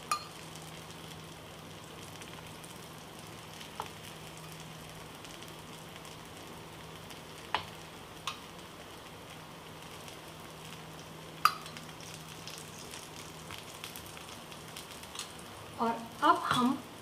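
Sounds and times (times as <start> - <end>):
batter sizzling in oil: 0.0 - 17.0
steel spoon clicking on pan: 0.1 - 0.4, 8.3 - 8.5, 11.4 - 11.8.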